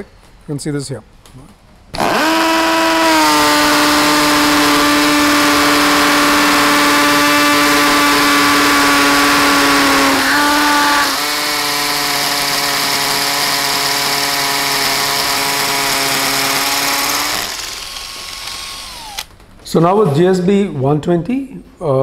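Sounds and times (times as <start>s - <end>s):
drill motor whine: 2.0s - 19.3s.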